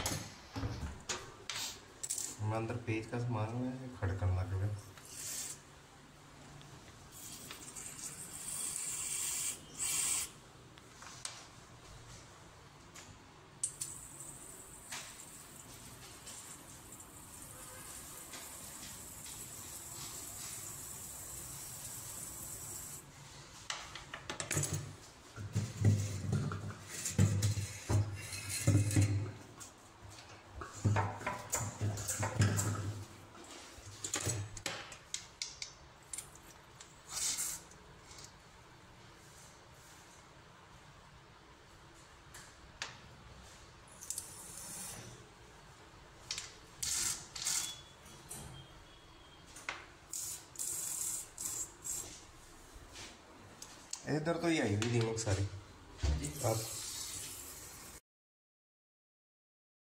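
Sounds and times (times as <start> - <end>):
knocks and scrapes on floor: 23.7 - 29.4.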